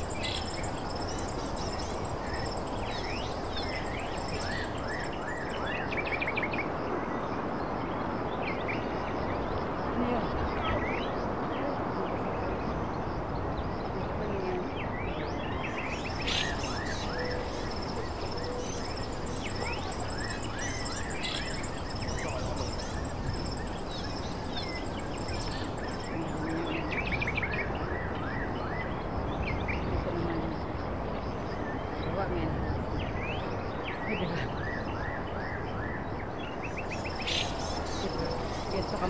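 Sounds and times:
birds chirping: 0.0 - 6.4, 14.2 - 27.9, 36.3 - 39.0
rushing outdoor background noise: 0.0 - 39.0.

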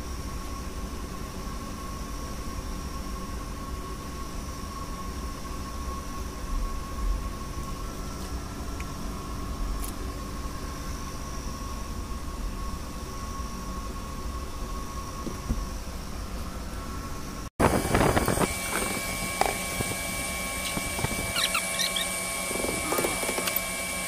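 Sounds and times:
machine hum: 0.0 - 24.0
thin whine: 0.0 - 24.0
wind rumble on microphone: 17.6 - 21.4.

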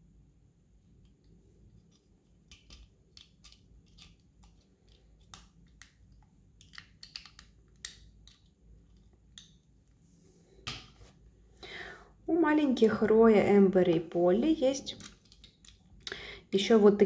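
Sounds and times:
plastic toys clicking: 1.9 - 9.6, 15.0 - 16.0.

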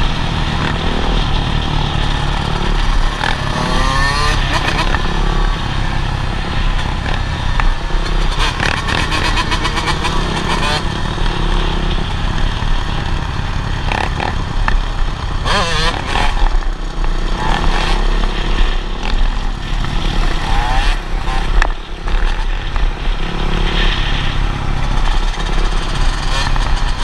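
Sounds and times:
dirt bike engines revving: 0.0 - 27.0.

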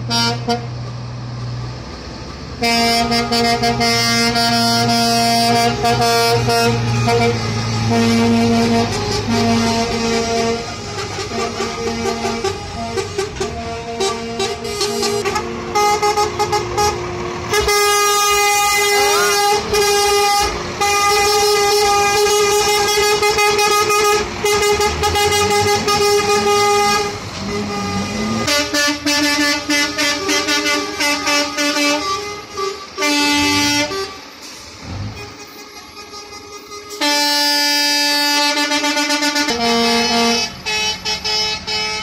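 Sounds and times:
truck air horn blasts: 0.0 - 0.8, 2.6 - 42.0
heavy trucks passing: 0.0 - 42.0.

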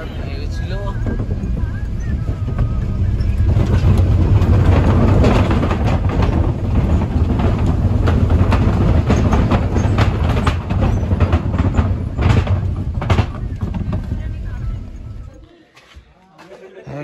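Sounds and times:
rattles and knocks: 0.0 - 15.4
vehicle rumbling on rough road: 0.0 - 15.4.

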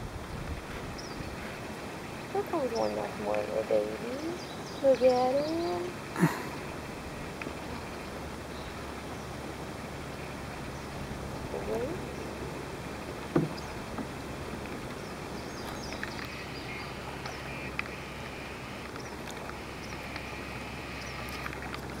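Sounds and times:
wind noise: 0.0 - 3.3
water noise: 0.0 - 22.0
faint clicks: 7.3 - 7.9, 21.0 - 22.0.

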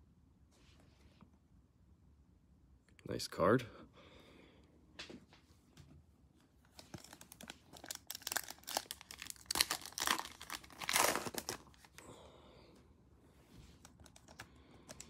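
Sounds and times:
foil wrapper crinkling and tearing: 6.7 - 12.0.

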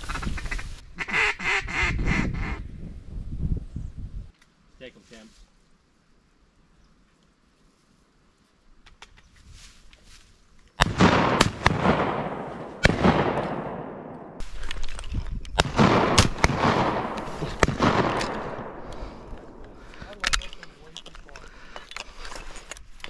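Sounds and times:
shotgun shots echoing: 10.8 - 14.6, 15.6 - 19.9.

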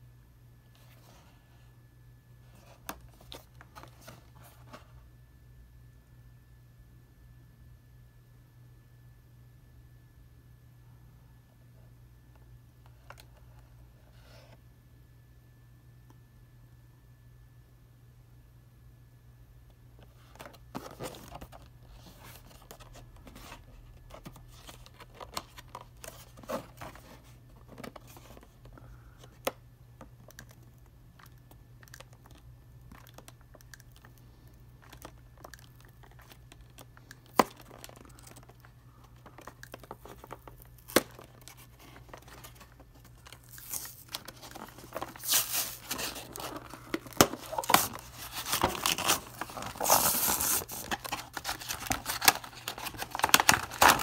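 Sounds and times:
plastic packaging clicks and crinkles: 20.3 - 54.0
card and plastic tearing: 34.8 - 54.0.

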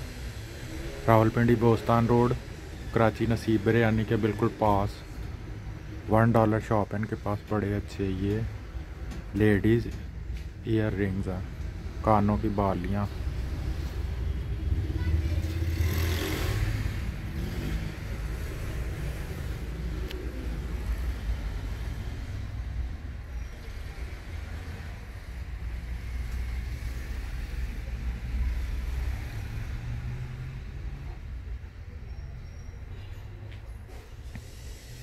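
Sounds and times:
road traffic rumbling: 0.0 - 35.0
vehicle passing: 10.7 - 31.6.

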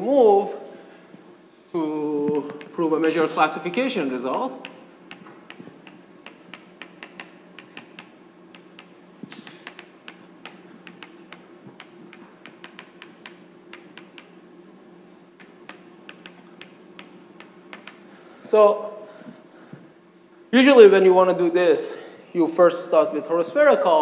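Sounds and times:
low room hum: 0.0 - 24.0
chalk tapping on blackboard: 3.6 - 14.4, 15.4 - 18.0.

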